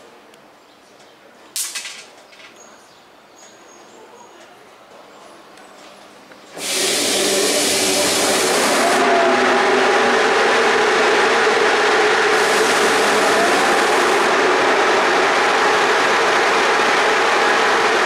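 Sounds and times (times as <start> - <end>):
electric locomotive humming: 6.5 - 18.0
high hiss: 6.6 - 9.2.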